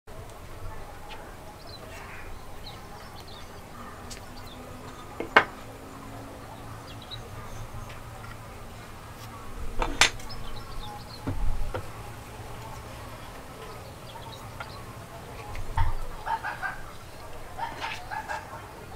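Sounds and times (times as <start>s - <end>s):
faint chirping: 0.1s - 18.9s
low hum: 0.1s - 18.9s
wooden pieces knocking: 5.2s - 5.6s.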